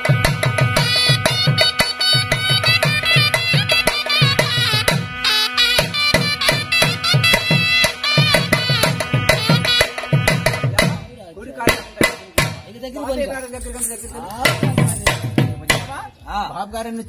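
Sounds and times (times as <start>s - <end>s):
double-reed pipe melody: 0.0s - 11.1s
drum beat: 0.0s - 17.0s.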